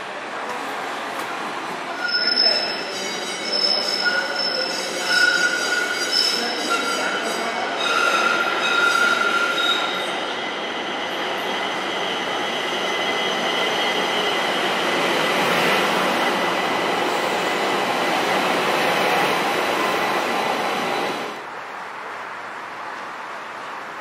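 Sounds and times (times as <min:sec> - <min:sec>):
high wheel squeal: 0:02.0 - 0:14.4.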